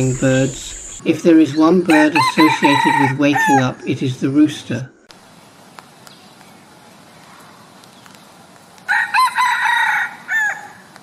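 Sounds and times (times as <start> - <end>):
rooster crowing: 1.9 - 3.7, 8.9 - 10.9.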